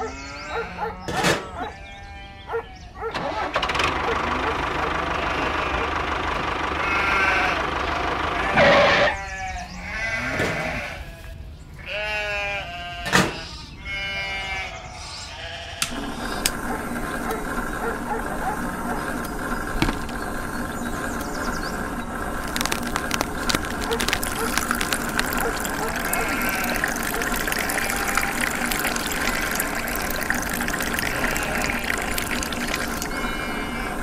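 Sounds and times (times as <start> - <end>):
quavering bleats: 0.0 - 2.8, 6.7 - 19.4, 20.2 - 34.0
small motor humming: 15.9 - 34.0.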